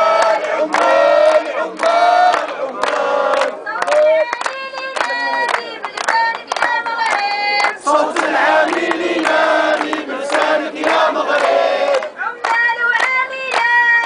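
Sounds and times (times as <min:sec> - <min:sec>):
crowd chanting in unison: 0:00.0 - 0:04.2, 0:05.1 - 0:12.4
woman calling through a megaphone: 0:03.4 - 0:07.8, 0:12.0 - 0:14.0.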